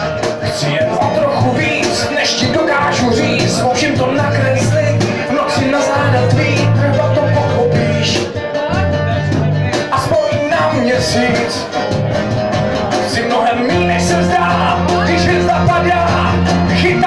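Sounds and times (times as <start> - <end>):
acoustic guitars: 0.0 - 17.0
bass guitar line: 0.0 - 17.0
man singing into a microphone: 0.0 - 17.0.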